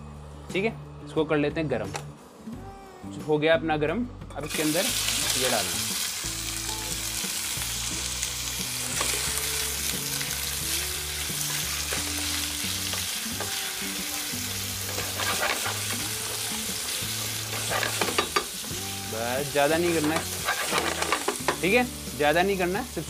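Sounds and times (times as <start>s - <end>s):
vegetables sizzling in oil: 4.5s - 23.0s
spatula scraping pan: 14.9s - 16.0s, 17.5s - 18.4s, 19.9s - 21.4s.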